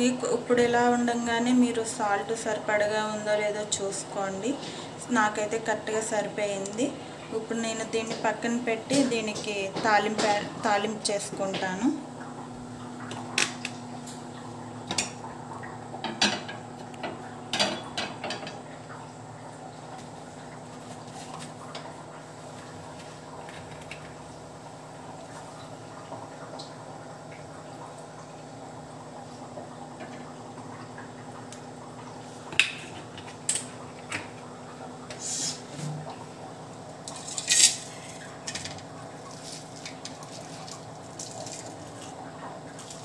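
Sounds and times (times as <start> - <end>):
faint steady hum: 0.0 - 43.0.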